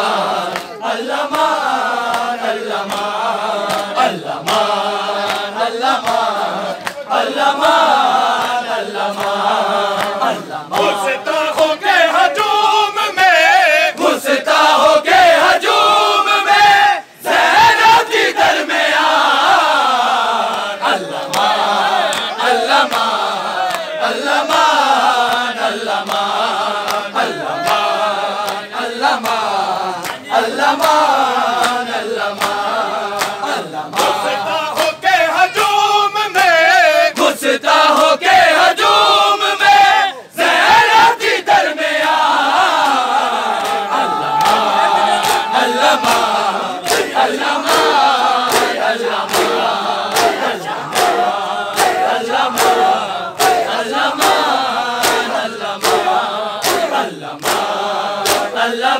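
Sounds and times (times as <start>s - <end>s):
crowd of men chanting: 0.0s - 58.9s
hands slapping chests: 0.4s - 7.1s, 20.4s - 35.0s, 42.7s - 58.6s.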